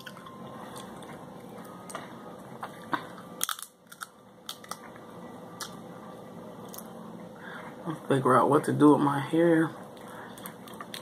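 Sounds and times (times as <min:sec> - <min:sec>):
crab shell cracking by hand: 0:03.4 - 0:04.8.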